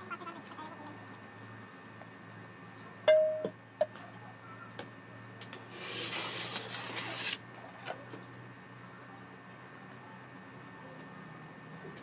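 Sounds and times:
straightedge scraping wet mortar: 5.7 - 7.4.

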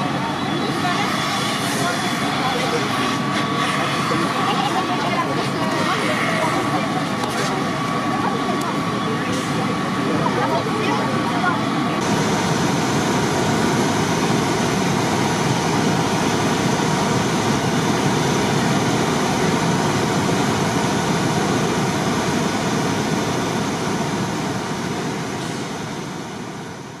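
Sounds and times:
fire engine pumps roaring: 0.0 - 27.0.

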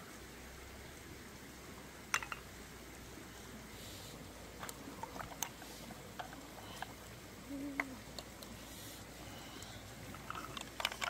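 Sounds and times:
flowing stream: 0.0 - 11.0
stick scraping snail shells: 4.6 - 7.2, 7.8 - 11.0.

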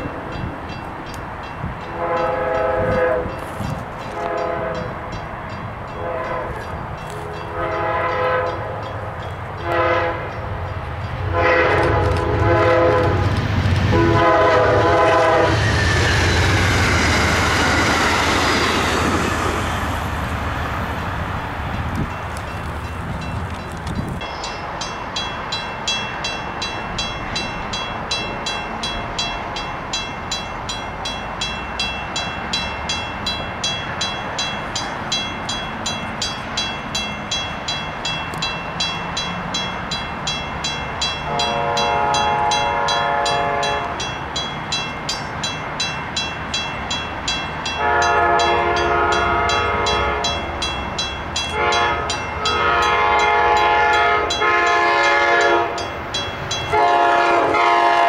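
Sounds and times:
crossing bell ringing: 0.0 - 13.4, 14.0 - 20.0, 21.0 - 58.0
train horn blasts: 1.8 - 5.1, 5.9 - 8.9, 9.6 - 10.6, 11.2 - 13.3, 13.9 - 15.8, 41.2 - 44.1, 47.7 - 50.5, 51.5 - 55.8, 56.7 - 58.0.

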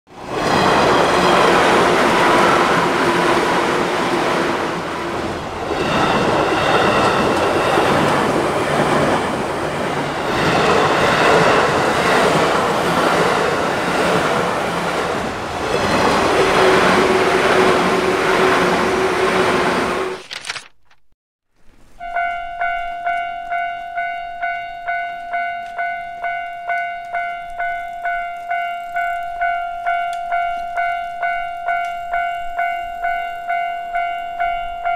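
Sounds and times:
trains passing: 0.1 - 20.2
level-crossing warning bells: 22.0 - 34.9.

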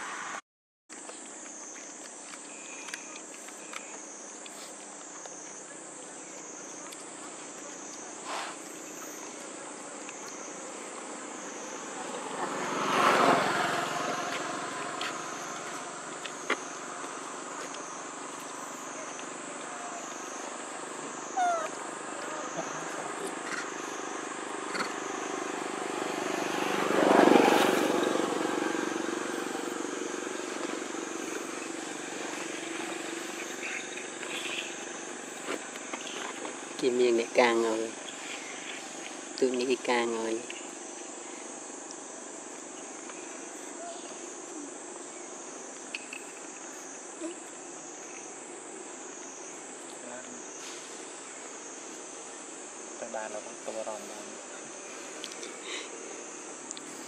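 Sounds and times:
vehicle passing by: 11.2 - 18.3, 20.8 - 35.4.

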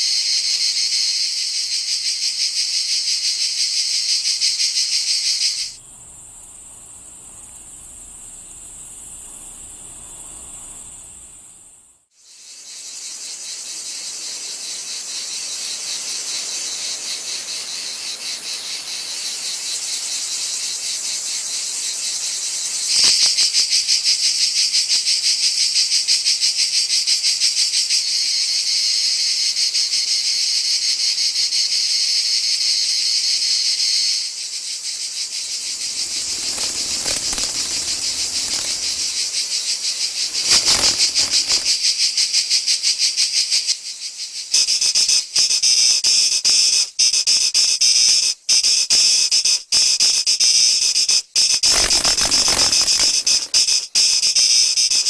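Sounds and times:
cicadas buzzing: 0.0 - 46.9, 51.0 - 55.0
close loud cicada song: 0.0 - 55.0.

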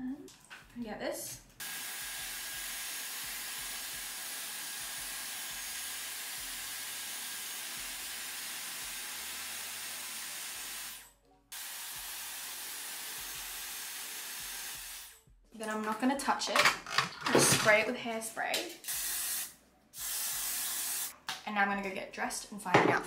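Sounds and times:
hair styler blowing hiss: 11.6 - 15.1, 18.9 - 21.1.

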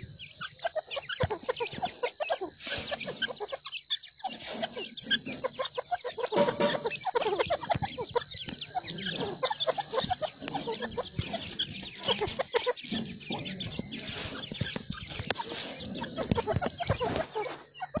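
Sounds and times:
francolins calling: 0.0 - 18.0.

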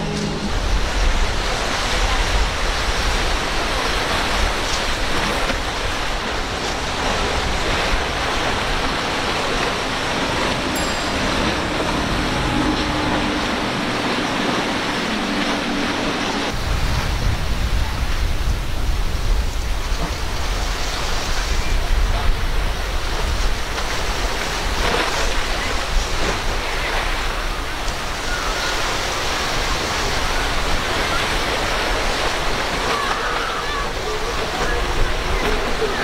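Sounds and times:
low rumble: 0.0 - 2.3, 7.0 - 20.4
outboard motors humming: 0.0 - 17.5, 18.4 - 36.0
hull spray and waves rushing: 0.0 - 36.0.

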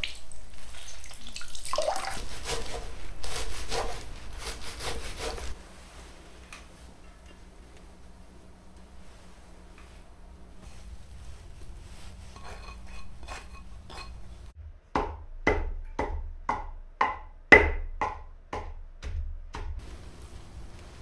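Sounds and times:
pestle pounding in stone mortar: 14.9 - 19.8.

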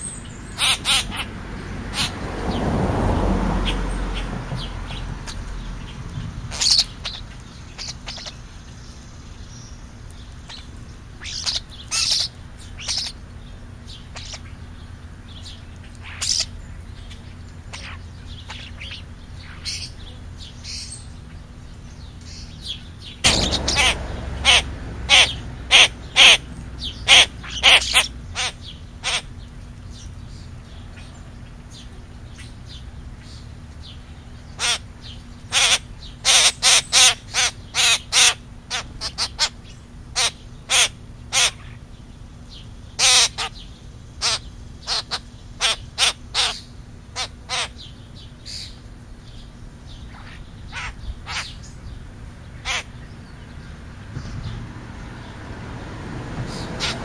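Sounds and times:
crow cawing: 23.3 - 26.4.

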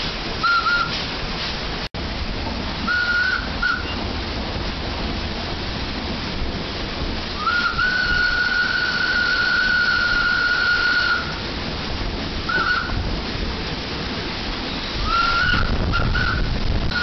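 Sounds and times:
steady steam hiss: 0.0 - 17.0
steam locomotive whistle: 0.4 - 1.1, 2.8 - 4.1, 7.3 - 11.5, 12.4 - 13.1, 14.6 - 17.0.

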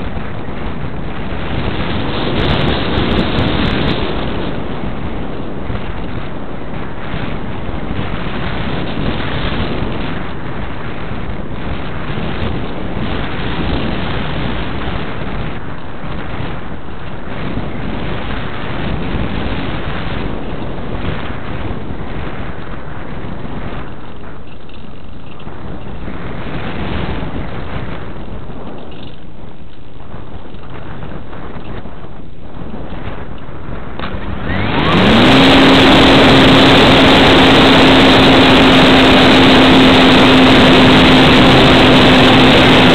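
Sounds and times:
wind rushing over microphone: 0.0 - 42.9
electric motor whine: 34.0 - 42.9.

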